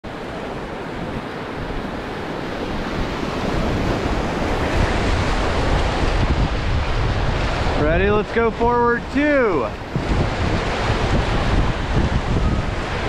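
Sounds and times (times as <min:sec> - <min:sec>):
whitewater rapid rushing: 0:00.1 - 0:13.0
wind buffeting microphone: 0:00.1 - 0:13.0.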